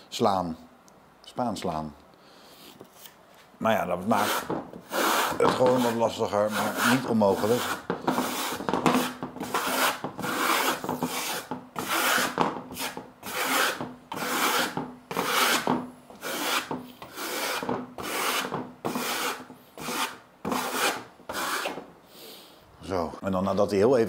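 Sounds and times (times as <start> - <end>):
trowel scraping plaster on wood: 4.0 - 21.8.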